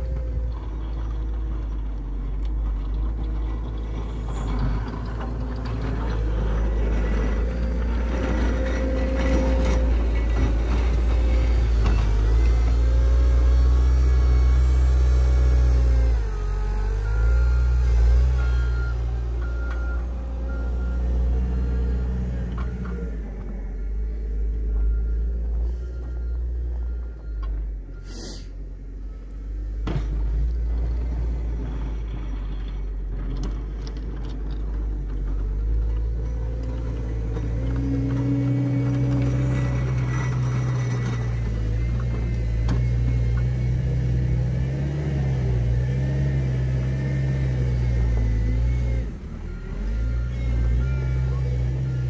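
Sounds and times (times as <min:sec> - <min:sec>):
diesel engine rumbling: 0:00.0 - 0:52.0.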